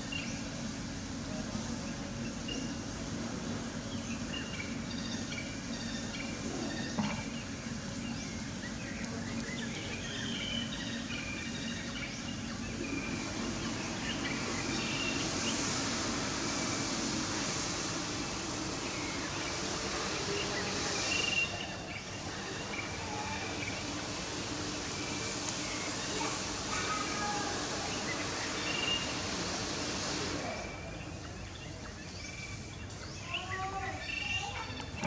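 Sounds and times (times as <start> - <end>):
outdoor background hum and hiss: 0.0 - 35.0.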